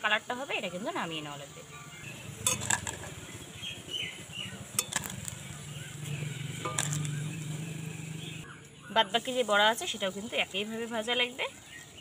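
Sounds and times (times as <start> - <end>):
metal spoon clinking: 2.4 - 3.1, 4.7 - 5.4, 6.6 - 7.1.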